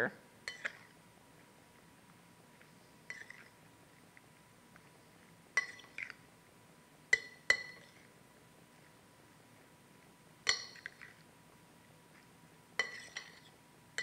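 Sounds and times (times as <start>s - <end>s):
metal spoon clinking on glass bowl: 0.4s - 0.9s, 5.6s - 6.2s, 7.1s - 8.0s, 10.4s - 11.2s, 12.8s - 14.0s
spoon scraping bowl: 0.4s - 1.0s, 3.0s - 3.6s, 5.5s - 6.2s, 7.2s - 8.1s, 10.5s - 11.2s, 12.8s - 13.6s.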